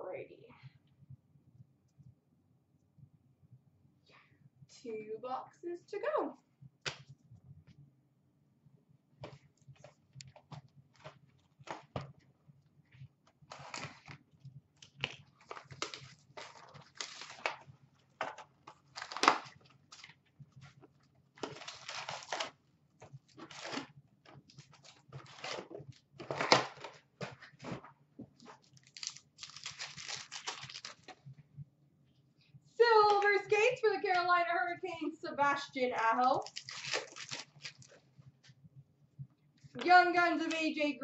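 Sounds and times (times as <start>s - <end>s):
wrappers rustling and tearing: 13.5s - 14.2s, 14.8s - 17.7s, 18.7s - 20.2s, 21.4s - 22.6s, 23.3s - 27.8s, 28.4s - 31.2s, 36.2s - 38.0s.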